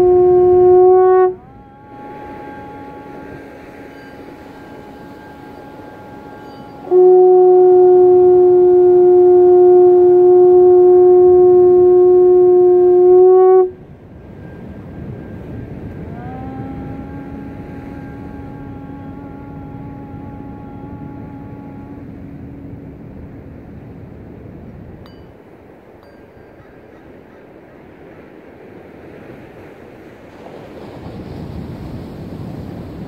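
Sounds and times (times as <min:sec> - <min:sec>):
horn blown by mouth: 0:00.0 - 0:23.4.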